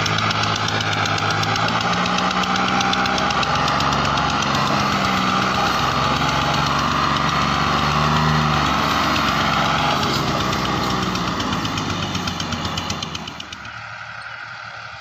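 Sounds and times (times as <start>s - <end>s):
tractor diesel engine under load: 0.0s - 15.0s.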